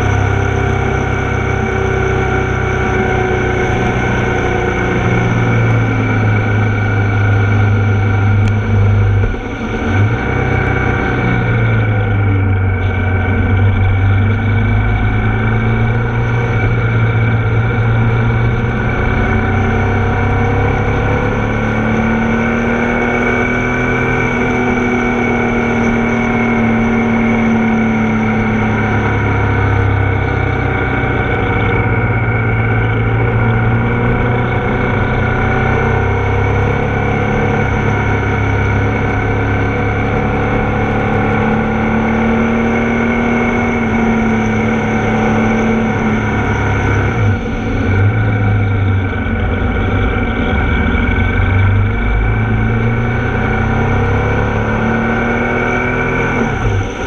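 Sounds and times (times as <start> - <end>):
motorcycle engine: 0.0 - 57.0
wind and road noise: 0.0 - 57.0.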